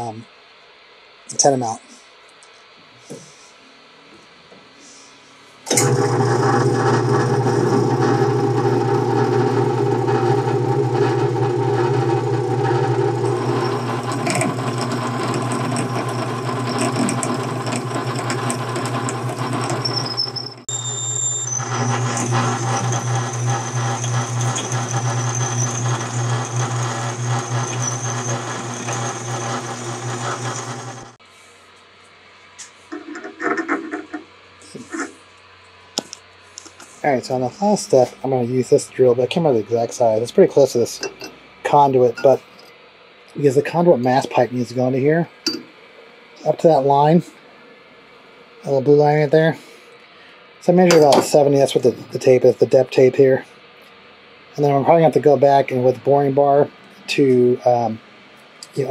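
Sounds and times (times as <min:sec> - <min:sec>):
drill boring into metal: 0:05.7 - 0:31.2
metal lathe humming: 0:05.7 - 0:31.2
thin high squeal: 0:19.8 - 0:29.7.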